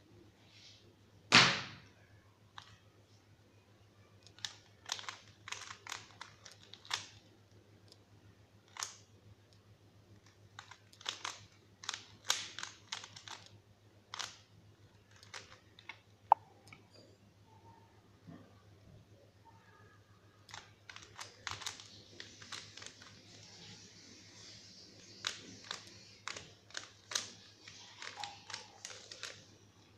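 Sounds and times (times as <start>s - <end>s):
puzzle cube clicking: 4.2s - 7.3s, 8.7s - 9.1s, 10.2s - 14.4s, 15.1s - 16.8s, 20.5s - 23.2s, 25.0s - 29.5s.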